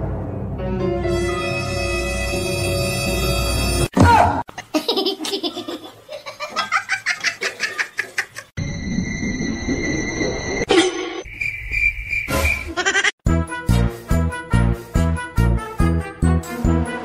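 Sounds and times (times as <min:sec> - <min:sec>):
person laughing hard: 0:12.8 - 0:13.1.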